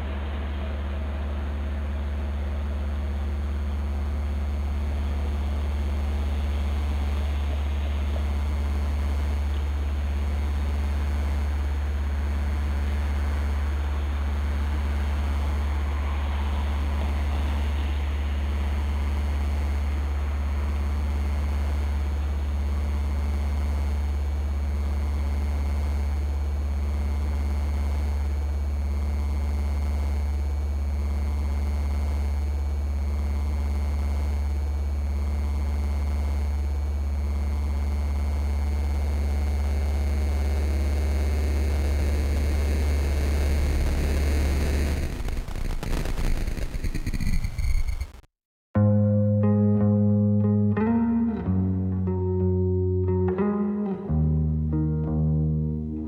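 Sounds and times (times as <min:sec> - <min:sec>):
deep low drone: 0:00.0 - 0:24.5, 0:39.9 - 0:47.4.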